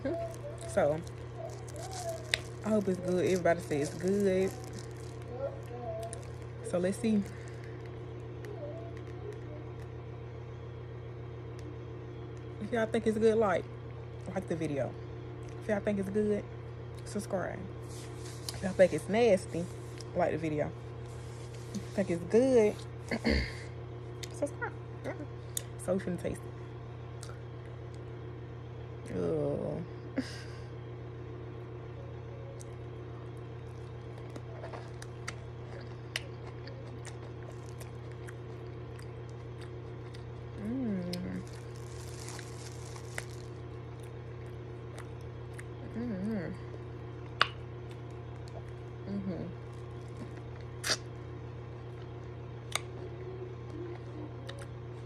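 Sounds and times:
person chewing crunchy food: 0:00.0 - 0:09.8, 0:33.6 - 0:45.8, 0:46.7 - 0:55.0
low electrical hum: 0:00.0 - 0:55.0.

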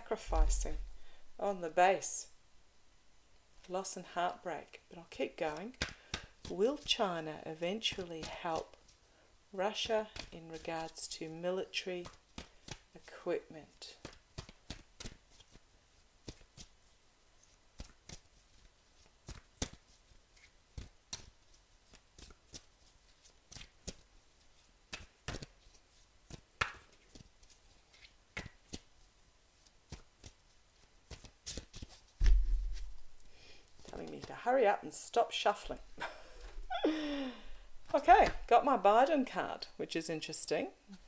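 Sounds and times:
cards being shuffled: 0:12.0 - 0:12.9, 0:14.0 - 0:15.6, 0:16.2 - 0:16.7, 0:17.4 - 0:29.0, 0:29.6 - 0:34.4
dull thump: 0:32.2 - 0:33.1.

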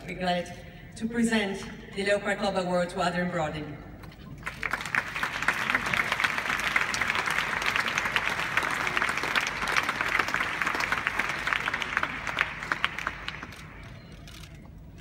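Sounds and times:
large audience applauding: 0:04.4 - 0:14.5.

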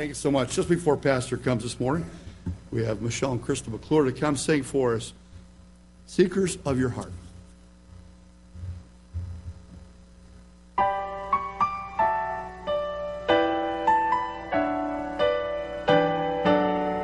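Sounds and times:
soft low thumps: 0:02.3 - 0:02.7, 0:07.9 - 0:10.0
piano notes and chords: 0:10.8 - 0:17.0.

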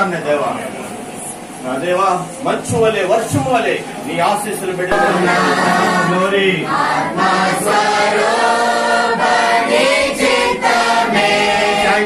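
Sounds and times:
group singing worship song: 0:04.9 - 0:12.0.

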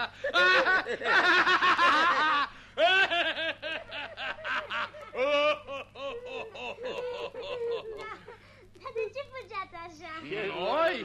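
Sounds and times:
high-pitched laughing voices: 0:00.0 - 0:08.4.

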